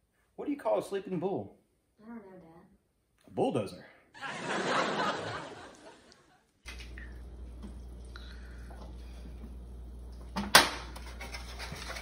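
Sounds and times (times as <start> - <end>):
low steady hum: 6.7 - 12.0.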